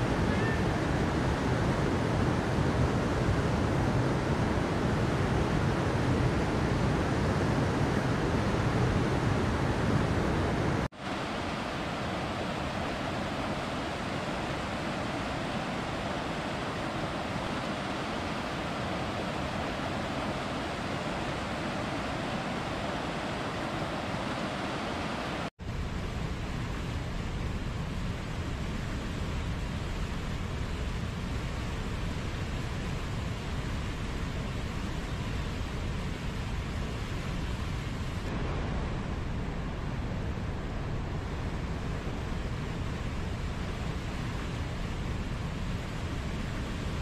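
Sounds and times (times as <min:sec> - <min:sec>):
stream rushing over rocks: 0:00.0 - 0:25.5.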